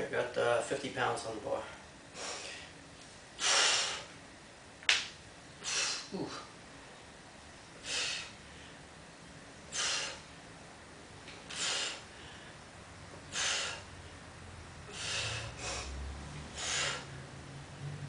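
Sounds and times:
man breathing forcefully: 2.1 - 2.8, 3.4 - 4.2, 5.6 - 6.6, 7.8 - 8.8, 9.7 - 10.4, 11.4 - 17.3.

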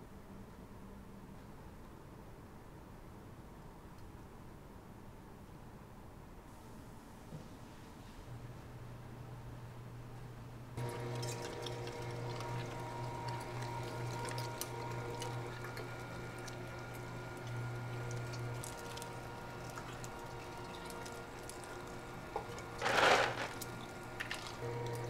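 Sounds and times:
kitchen equipment humming: 10.8 - 25.0.

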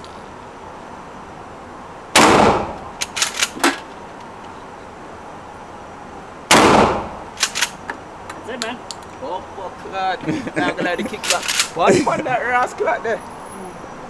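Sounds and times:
shotgun blasts with echo: 2.1 - 2.8, 6.5 - 7.2
shotgun pump racking clicks: 7.4 - 7.9, 11.2 - 11.7.

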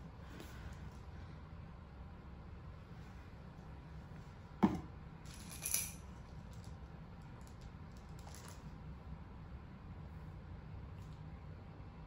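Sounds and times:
high jingling rattle: 5.3 - 6.1.

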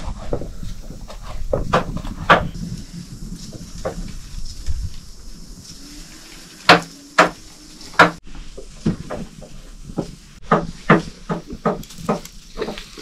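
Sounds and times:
hard objects knocking: 0.3 - 2.6, 8.0 - 12.9.

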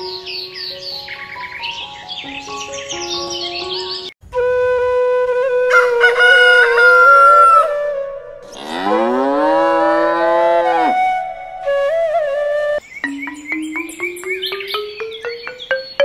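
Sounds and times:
rooster crowing: 5.7 - 7.8
cow mooing: 8.5 - 10.9.

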